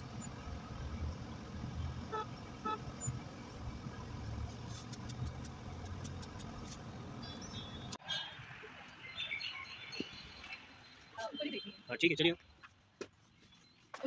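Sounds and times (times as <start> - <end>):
car engine and road rumble: 0.0 - 8.9
car horn toots: 2.1 - 2.9.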